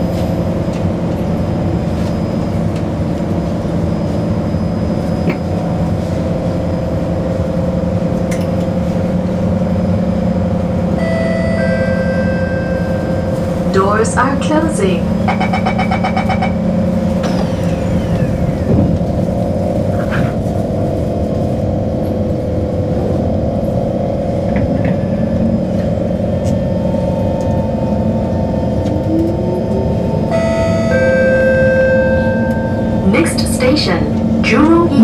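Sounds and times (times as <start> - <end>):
steady electrical hum: 5.9 - 35.0
traction motors whining: 10.8 - 35.0
rapid door-closing beeps: 15.3 - 16.6, 30.3 - 33.2.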